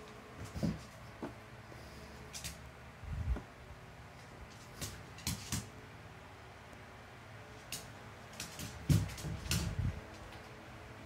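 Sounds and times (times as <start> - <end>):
faint steady hum: 0.0 - 11.0
dog scuffling on hardwood floor: 0.4 - 1.4, 4.5 - 5.7, 7.6 - 10.6.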